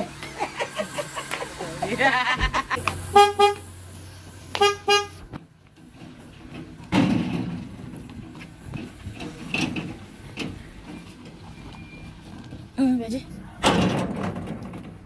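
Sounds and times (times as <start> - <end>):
car horn tooting: 3.1 - 3.7, 4.6 - 5.2.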